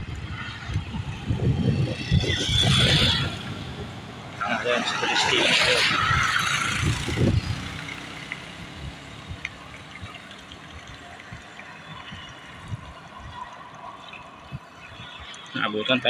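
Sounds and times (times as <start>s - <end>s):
wind buffeting microphone: 0.0s - 16.0s
tyres hissing on wet road: 4.4s - 16.0s.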